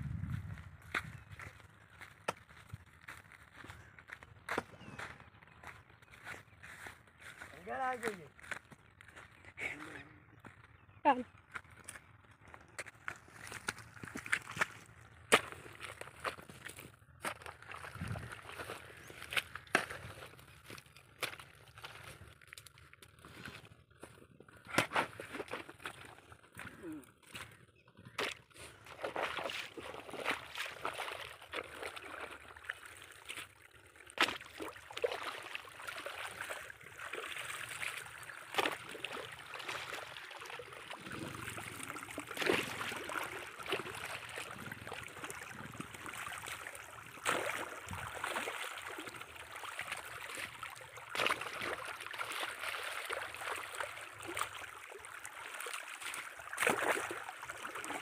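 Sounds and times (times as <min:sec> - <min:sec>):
hoe chopping into wet mud: 0:24.7 - 0:25.7
water gushing and splashing: 0:28.7 - 0:58.0.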